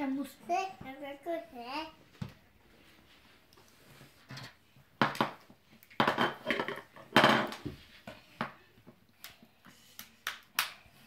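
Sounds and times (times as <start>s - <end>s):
plastic toys knocking on wooden table: 5.0s - 5.4s, 6.0s - 7.8s.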